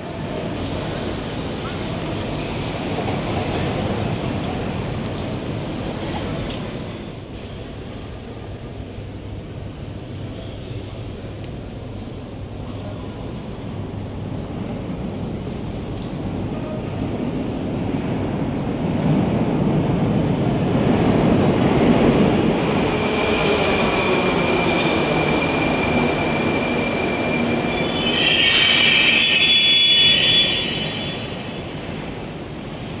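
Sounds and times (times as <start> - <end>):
train rumble: 0.0 - 33.0
train wheels squealing: 22.6 - 31.9.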